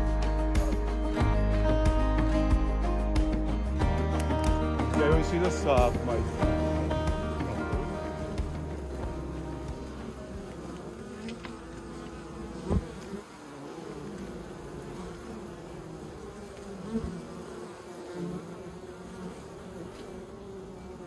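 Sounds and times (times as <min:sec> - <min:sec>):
honeybees buzzing: 0:00.0 - 0:21.0
low thump: 0:00.6 - 0:10.6.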